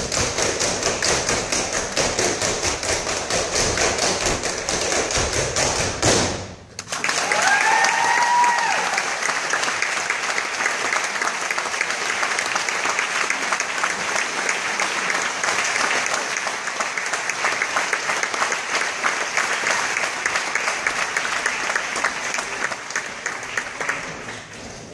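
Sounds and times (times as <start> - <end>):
audience applauding: 6.8 - 24.9.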